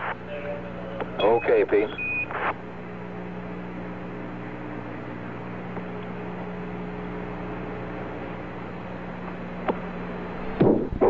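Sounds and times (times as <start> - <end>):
faint radio click: 0.0 - 2.6, 9.2 - 9.9
radio channel hiss and hum: 0.0 - 11.0.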